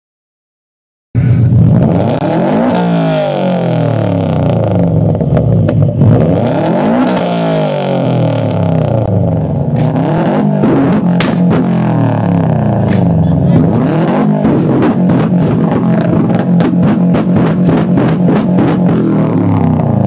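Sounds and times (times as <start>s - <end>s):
car engine on rev limiter: 1.2s - 20.0s
sharp exhaust cracks: 1.2s - 20.0s.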